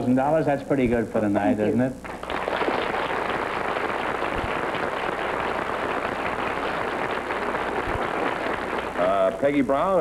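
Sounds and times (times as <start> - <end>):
audience applauding: 2.0 - 10.0.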